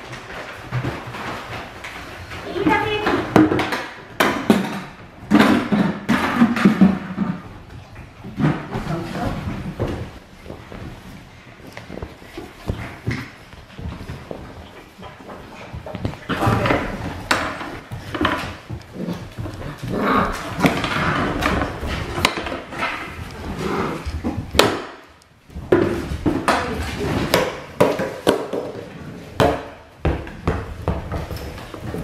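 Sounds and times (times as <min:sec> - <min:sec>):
toys and paws on wooden floor: 0:00.0 - 0:32.0
puppies growling and yapping: 0:18.9 - 0:21.6.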